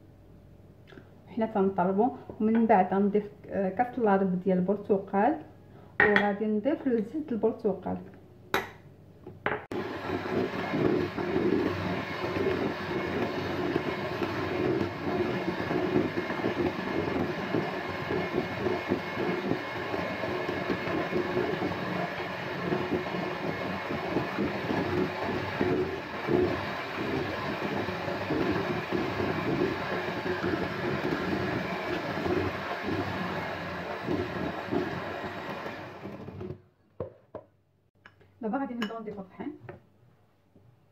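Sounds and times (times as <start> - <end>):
electric hand mixer running: 9.7 - 36.6.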